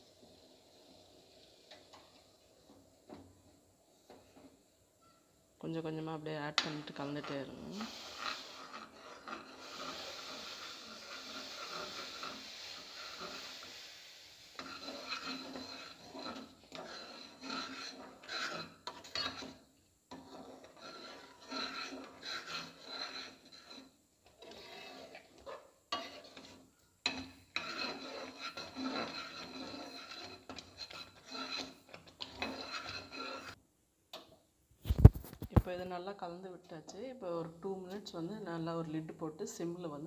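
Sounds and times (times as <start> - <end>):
spoon scraping metal pan: 6.6 - 33.6.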